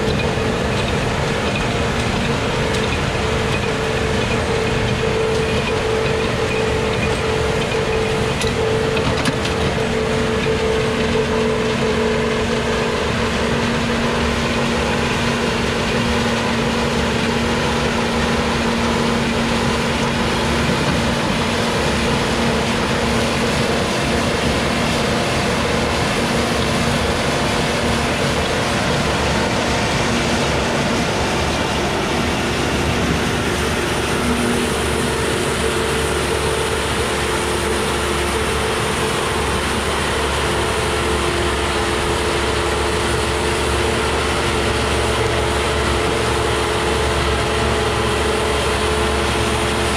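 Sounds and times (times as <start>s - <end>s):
tractor engine under load: 0.0s - 49.9s.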